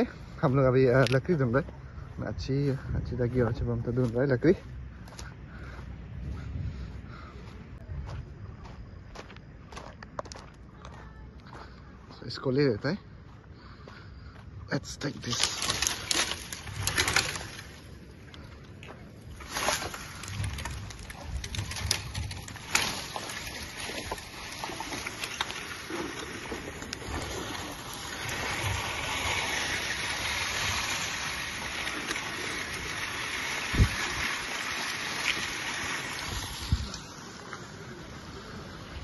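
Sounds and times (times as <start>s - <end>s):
dry branches knocking and cracking: 15.0s - 29.4s.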